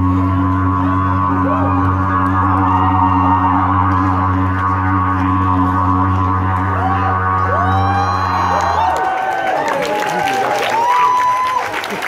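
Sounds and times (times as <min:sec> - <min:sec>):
deep droning buzz: 0:00.0 - 0:09.6.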